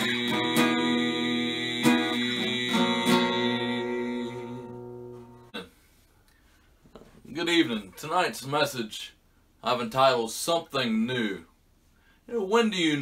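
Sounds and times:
acoustic guitar strumming: 0.0s - 5.6s.

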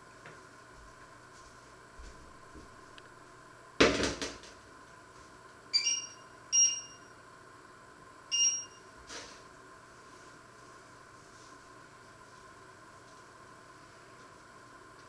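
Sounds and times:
short electronic beeps: 5.8s - 7.1s, 8.3s - 8.8s.

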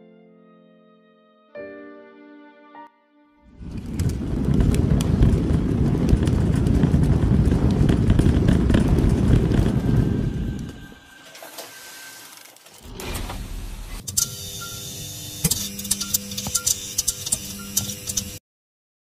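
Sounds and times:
loud low rumbling: 3.5s - 11.2s, 12.8s - 14.1s
crackles: 3.5s - 14.3s.

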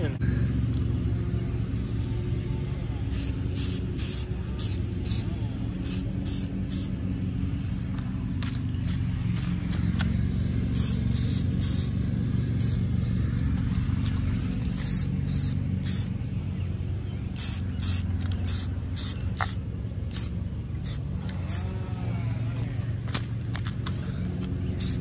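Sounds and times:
steady low rumble: 0.0s - 25.0s
spray can hissing: 3.1s - 6.9s, 10.7s - 11.9s, 12.6s - 12.9s, 14.7s - 16.1s, 17.4s - 21.7s, 24.8s - 25.0s.

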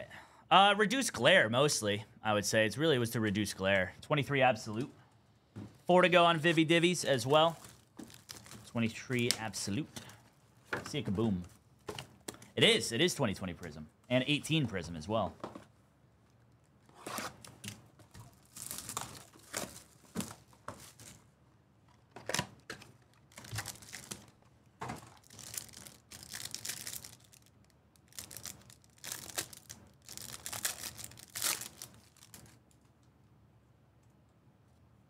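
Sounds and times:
foil wrappers tearing and crinkling: 7.4s - 9.3s, 18.1s - 21.2s, 22.8s - 24.4s, 25.0s - 32.7s.

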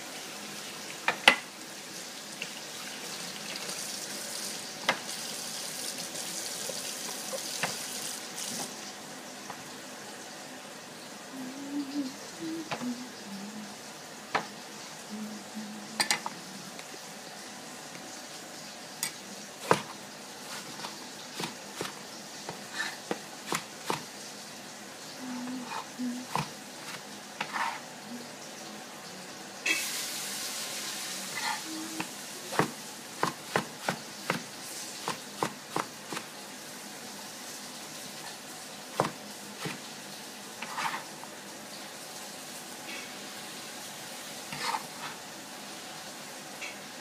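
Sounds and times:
steady hiss: 3.2s - 47.0s
cleaver chopping on cutting board: 19.6s - 19.9s, 20.5s - 24.1s, 32.0s - 36.3s, 39.0s - 39.8s.

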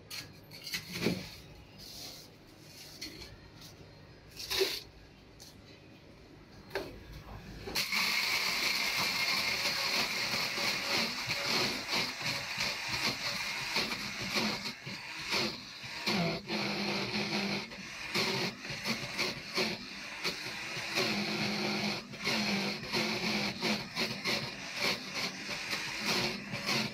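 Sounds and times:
blender crushing ice: 7.8s - 26.9s.

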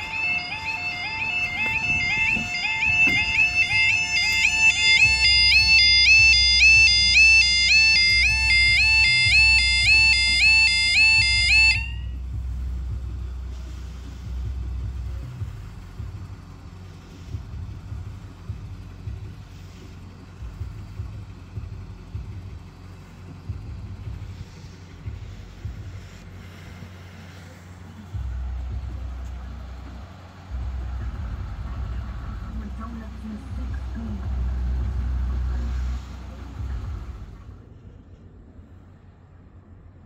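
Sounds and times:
level crossing alarm warbling: 0.0s - 12.2s
low rumble: 0.0s - 40.0s.

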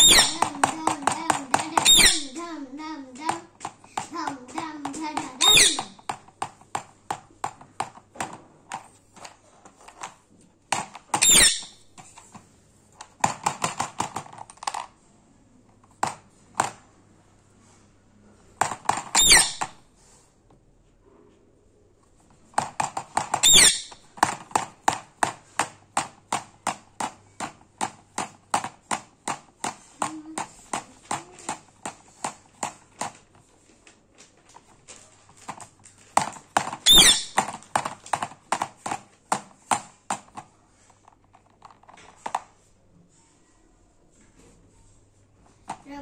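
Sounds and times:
beak tapping plastic box: 0.0s - 8.9s, 13.1s - 14.8s, 22.5s - 33.3s, 34.5s - 40.4s.

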